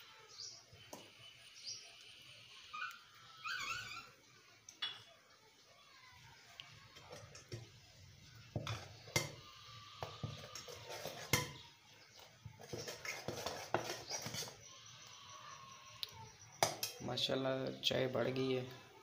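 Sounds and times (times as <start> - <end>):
metal ladle scraping metal pot: 10.0 - 11.6, 12.6 - 14.7.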